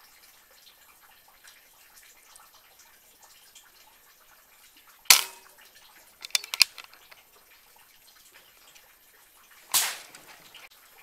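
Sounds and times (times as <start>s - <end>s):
small clicks and knocks: 5.1s - 5.4s, 6.2s - 7.2s.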